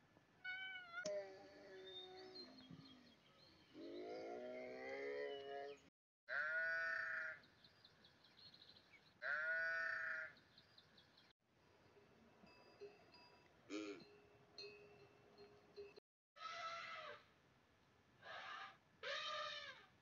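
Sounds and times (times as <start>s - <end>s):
low wavering animal cry: 18.2s - 19.9s.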